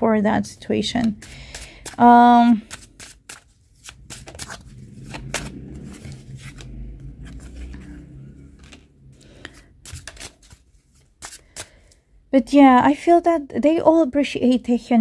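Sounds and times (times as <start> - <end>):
cards being shuffled: 0.9 - 12.0
low rumble: 4.1 - 9.5.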